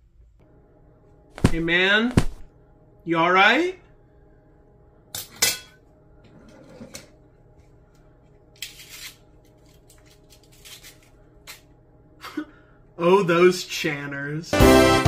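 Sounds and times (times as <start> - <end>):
fortune cookie cracking: 8.5 - 11.7.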